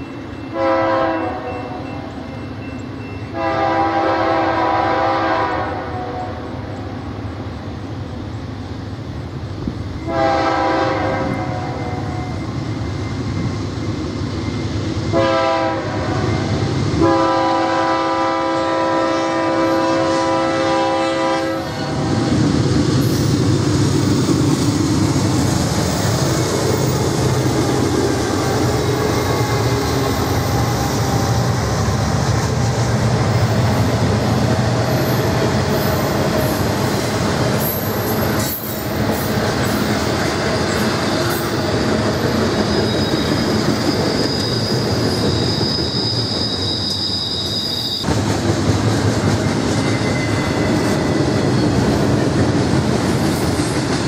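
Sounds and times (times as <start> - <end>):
locomotive air horn blasts: 0.5 - 2.0, 3.3 - 6.4, 10.0 - 12.3, 15.1 - 22.3
wheels rumbling on rails: 20.0 - 54.0.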